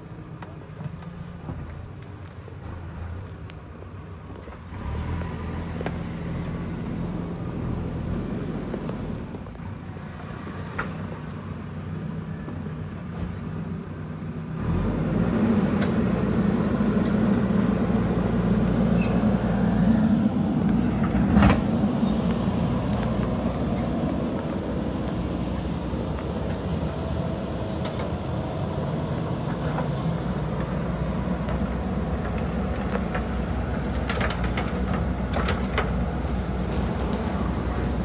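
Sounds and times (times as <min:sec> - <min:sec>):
diesel engine running: 0:00.0 - 0:38.0
backhoe digging rocky soil: 0:29.4 - 0:38.0.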